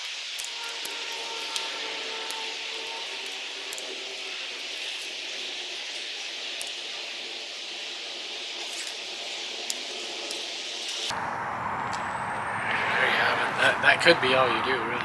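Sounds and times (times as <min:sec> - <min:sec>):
outdoor background hiss: 0:00.0 - 0:15.0
deep rushing noise: 0:11.1 - 0:15.0.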